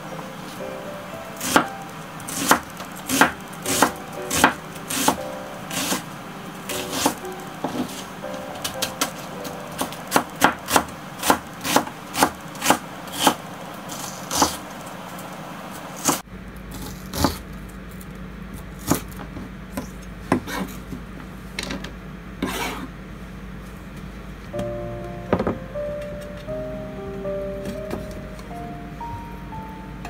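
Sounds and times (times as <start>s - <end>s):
knife slicing onion: 2.3s - 6.0s, 6.7s - 7.2s, 9.8s - 14.7s.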